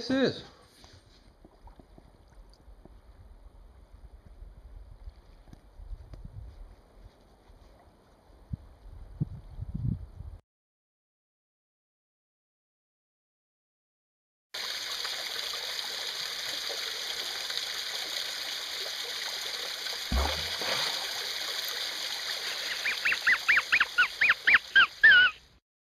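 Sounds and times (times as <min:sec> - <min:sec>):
waterfall splashing onto rock: 0:14.6 - 0:24.8
dull thump: 0:20.1 - 0:21.1
rapid high calls: 0:22.5 - 0:25.4.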